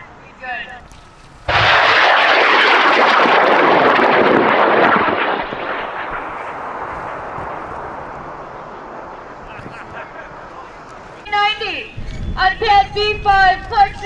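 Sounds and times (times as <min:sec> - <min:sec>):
rocket motor crackling roar: 0:01.4 - 0:12.6.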